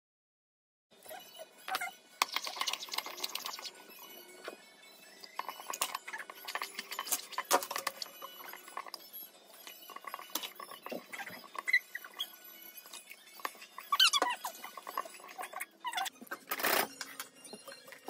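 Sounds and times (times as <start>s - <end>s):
milk pouring: 2.2s - 3.8s, 5.3s - 9.0s
fork scraping ceramic bowl: 9.7s - 16.1s.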